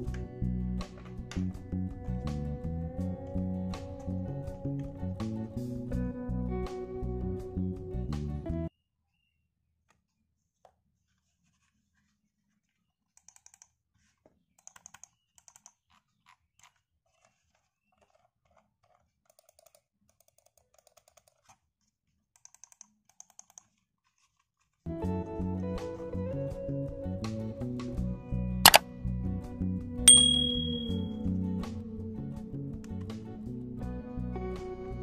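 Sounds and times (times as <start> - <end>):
computer mouse clicks: 13.2 - 21.6, 22.4 - 24.4.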